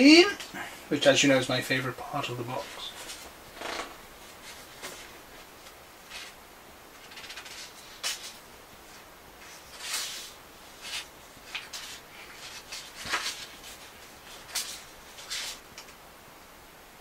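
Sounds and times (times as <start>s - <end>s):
magazine pages rustling: 2.5s - 6.4s, 7.0s - 16.0s.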